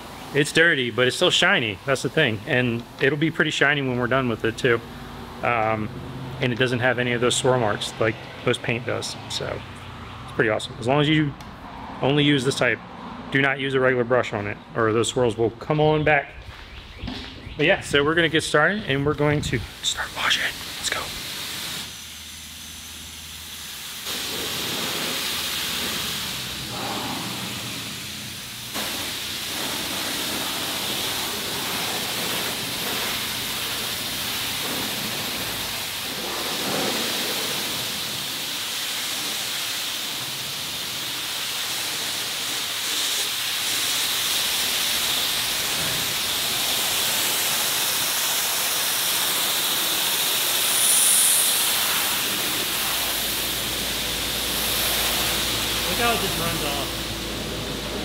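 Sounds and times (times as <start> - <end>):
high-pressure water jet spraying: 0.0 - 9.6, 19.4 - 58.0.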